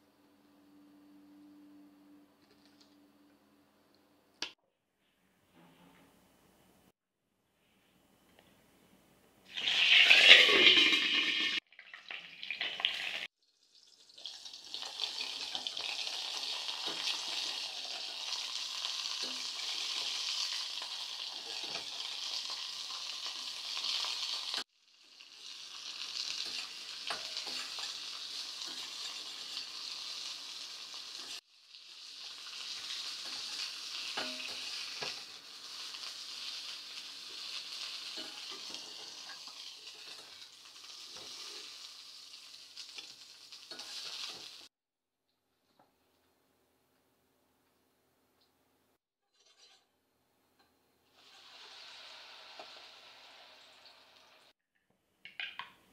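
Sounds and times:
chilies sizzling in hot oil: 9.5s - 44.8s, 50.5s - 54.6s.

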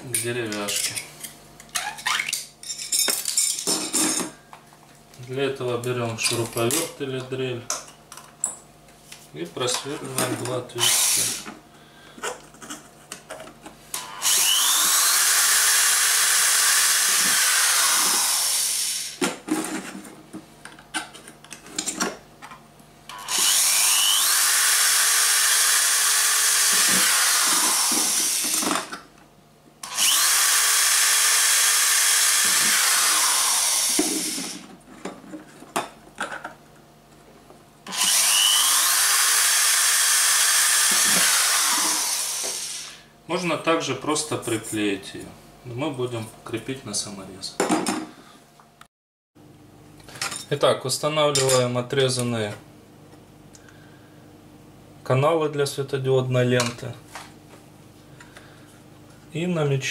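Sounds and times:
power drill whining: 10.8s - 11.5s, 14.0s - 19.2s, 23.1s - 28.9s, 29.8s - 34.6s, 37.9s - 43.0s.

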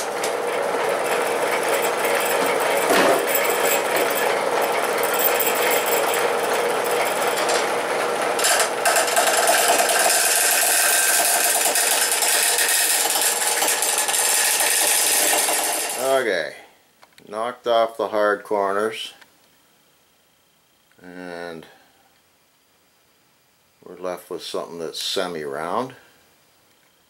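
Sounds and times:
wood lathe running: 0.0s - 16.2s
chisel cutting wood: 1.0s - 16.1s.

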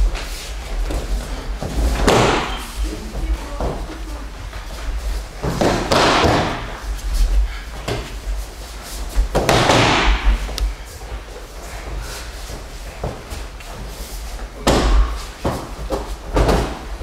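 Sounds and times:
bodies thudding on padded mat: 0.0s - 7.2s, 12.6s - 17.0s.

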